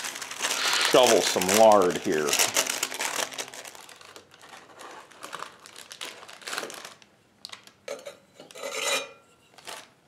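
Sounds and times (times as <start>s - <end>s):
paper rustling: 0.0s - 7.0s.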